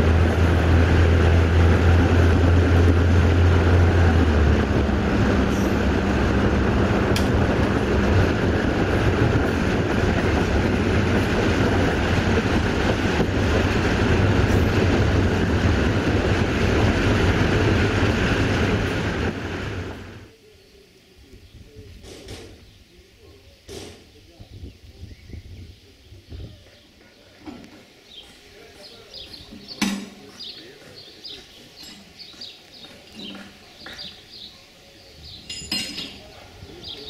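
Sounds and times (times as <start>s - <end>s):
train wheels rumbling on rails: 0.0s - 20.3s
diesel train engine hum: 0.0s - 37.0s.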